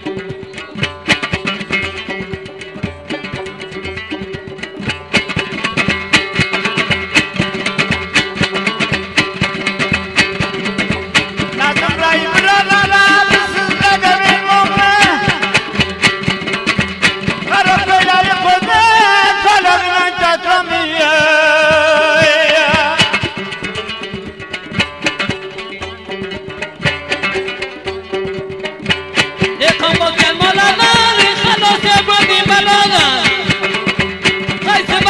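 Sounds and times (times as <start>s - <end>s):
fast plucked string tune: 0.0s - 35.0s
man singing: 11.4s - 15.8s, 17.4s - 23.5s, 29.6s - 35.0s.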